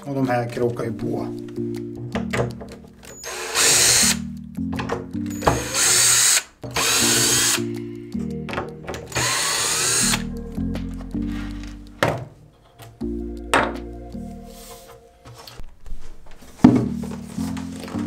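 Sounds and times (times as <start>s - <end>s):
cordless drill running: 3.2s - 4.2s, 5.3s - 7.6s, 9.1s - 10.3s.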